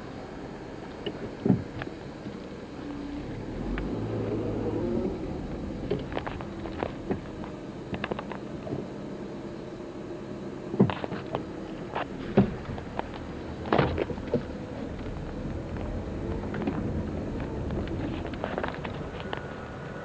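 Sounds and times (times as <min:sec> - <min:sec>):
low steady rumble: 0:00.0 - 0:20.0
sharp knocks and thuds: 0:12.0 - 0:13.0.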